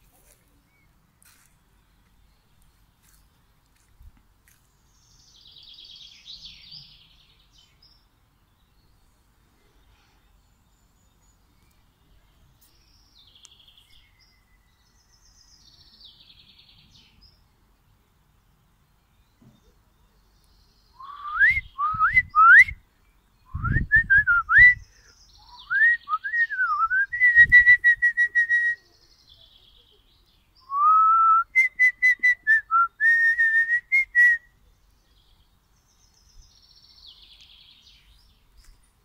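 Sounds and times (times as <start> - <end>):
faint bird calls: 19.3 - 22.4, 24.7 - 26.8
person whistling: 21.0 - 22.8, 23.5 - 24.8, 25.8 - 28.8, 30.7 - 34.4.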